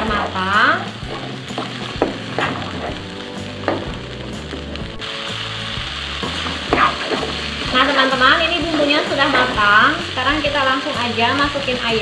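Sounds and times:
paste sizzling in hot oil: 0.0 - 12.0
spatula tapping pan: 6.6 - 7.8.

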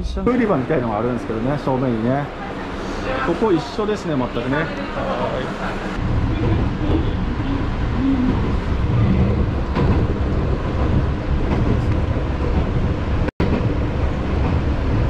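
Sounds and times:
train running: 0.0 - 15.0.

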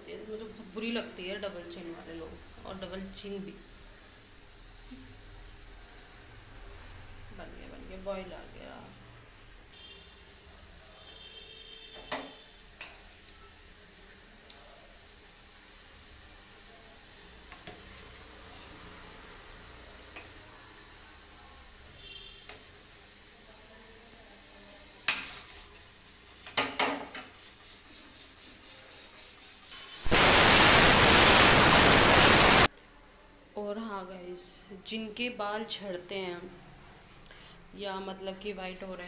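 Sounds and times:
boiling pot hissing: 0.0 - 39.0
loud rushing noise: 30.0 - 32.7.

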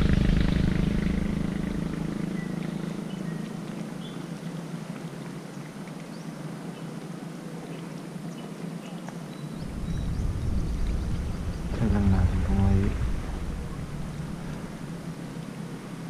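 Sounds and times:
engine droning: 0.0 - 4.5, 9.6 - 16.0
faint hiss: 6.2 - 16.0.

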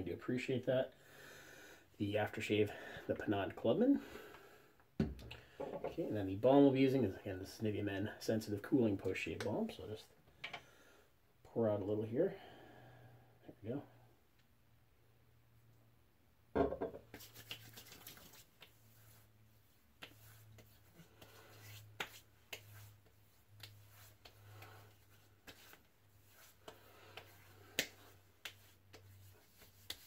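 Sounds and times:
loud knock: 16.6 - 17.0
soft slaps on skin: 17.0 - 18.8, 20.0 - 24.7, 26.6 - 30.0
hands rubbing skin: 17.1 - 30.0.

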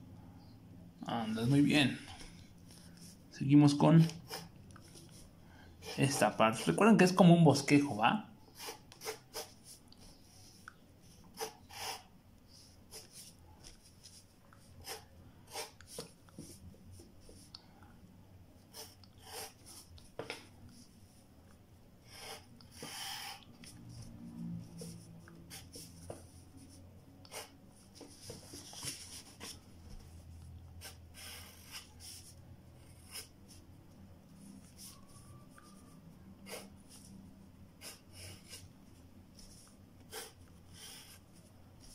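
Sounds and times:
pencil scratching on paper: 4.0 - 5.2, 5.8 - 6.9, 8.5 - 16.6, 18.6 - 20.0, 22.1 - 23.4, 24.6 - 30.2, 30.8 - 33.6, 34.6 - 37.1, 37.7 - 38.7, 39.4 - 41.9.

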